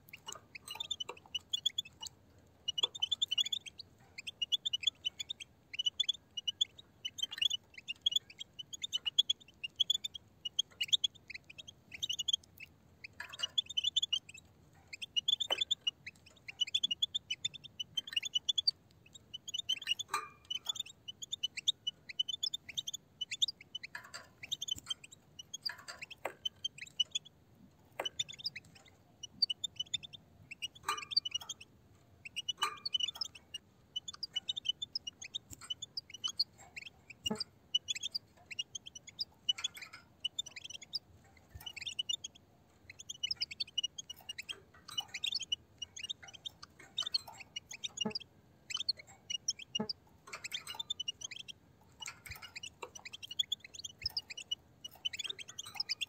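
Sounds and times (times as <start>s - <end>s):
goldfinches twittering: 0.0s - 2.1s, 28.0s - 56.0s
sharp bird clicks: 0.0s - 27.3s, 27.9s - 56.0s.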